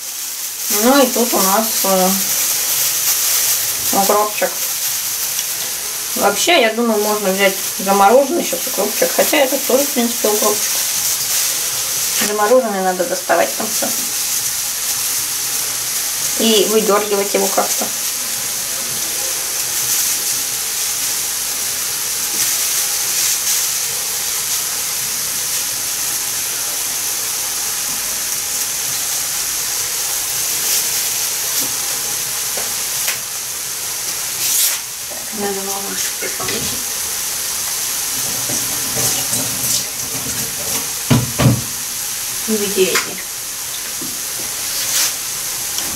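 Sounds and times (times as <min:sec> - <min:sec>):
vegetables frying in oil: 0:00.0 - 0:45.9.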